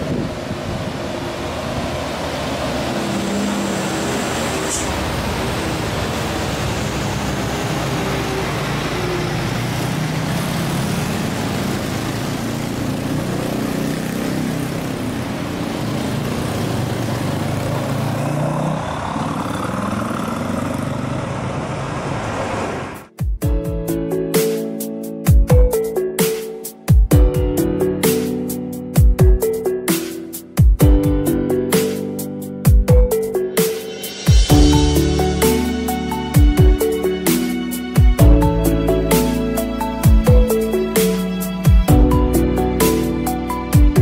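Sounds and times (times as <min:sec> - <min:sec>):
diesel trucks labouring uphill: 0:00.0 - 0:23.1.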